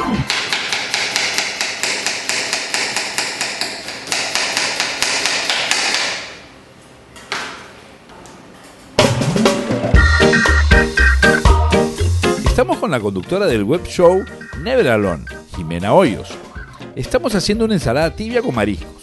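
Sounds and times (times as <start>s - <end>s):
upbeat music with steady beat: 9.0s - 19.0s.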